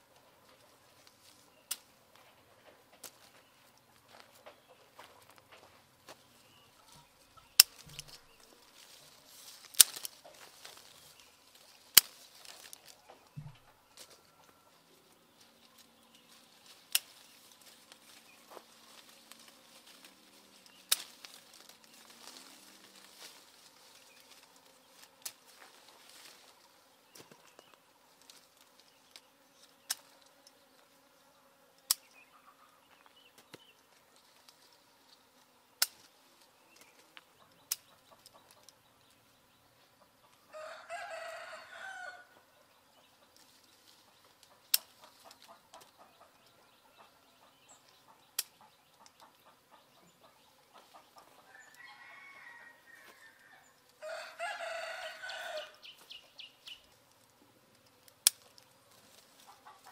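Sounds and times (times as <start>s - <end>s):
pruning shears snipping: 1.6s - 1.9s, 7.5s - 8.4s, 9.5s - 10.9s, 11.8s - 13.6s, 16.2s - 23.4s, 25.0s - 25.8s, 35.8s - 36.1s, 36.7s - 38.7s, 44.4s - 45.9s, 48.3s - 49.3s, 57.1s - 58.7s
rooster crowing: 13.7s - 14.9s, 40.5s - 42.5s, 51.4s - 55.8s.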